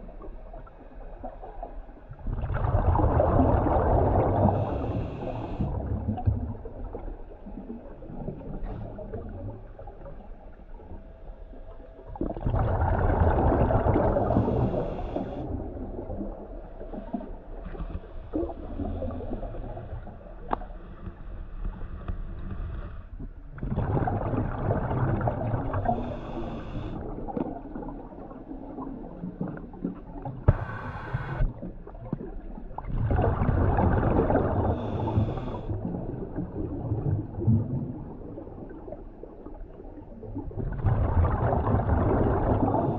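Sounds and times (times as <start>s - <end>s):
exhaled bubbles underwater: 0.0s - 11.0s, 11.6s - 20.6s, 23.2s - 42.9s
scuba regulator breathing: 4.4s - 5.8s, 14.2s - 15.5s, 25.8s - 27.0s, 30.5s - 31.5s, 34.7s - 35.7s.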